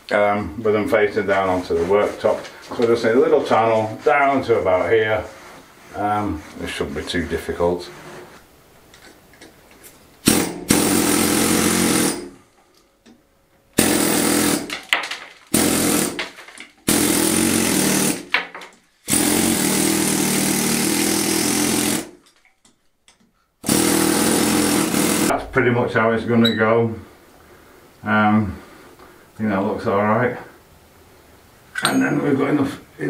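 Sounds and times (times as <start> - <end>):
air hammer chiselling stone: 10.2 - 12.4, 13.8 - 18.4, 19.1 - 22.3, 23.6 - 25.4.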